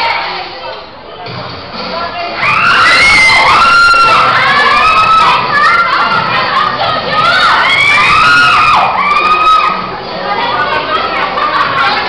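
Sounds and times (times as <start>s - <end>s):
crowd shouting and screaming: 2.4s - 12.0s.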